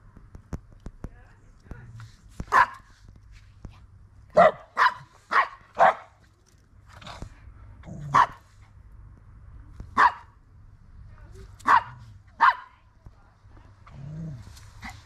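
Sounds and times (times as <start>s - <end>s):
dogs barking: 2.5s - 2.9s, 4.3s - 6.2s, 8.0s - 8.4s, 10.0s - 10.3s, 11.6s - 12.8s.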